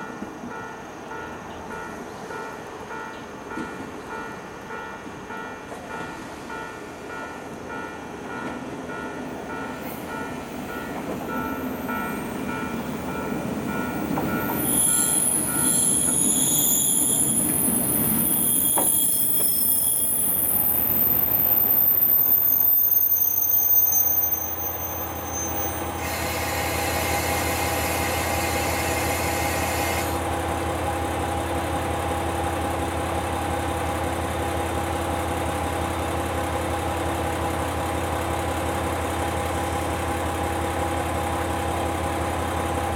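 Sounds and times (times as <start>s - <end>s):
train wheels and diesel engine: 0.0s - 42.9s
brakes squealing: 11.3s - 30.0s.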